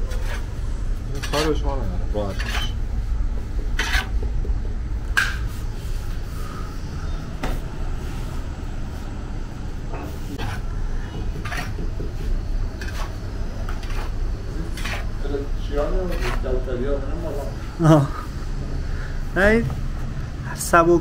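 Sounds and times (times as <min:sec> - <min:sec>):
metal scraper scraping clay oven: 0:00.0 - 0:00.5, 0:01.1 - 0:02.8, 0:03.8 - 0:04.2, 0:10.3 - 0:11.8, 0:12.8 - 0:16.7
low rumble: 0:00.0 - 0:09.9.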